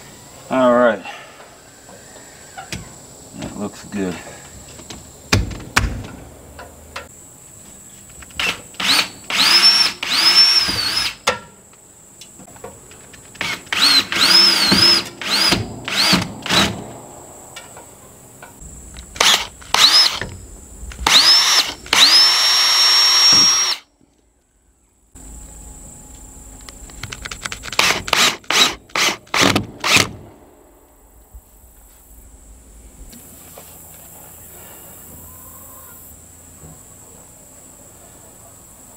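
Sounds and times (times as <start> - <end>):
cordless drill whining: 8.4 - 11.2, 13.4 - 16.7, 19.2 - 20.3, 21.0 - 23.8.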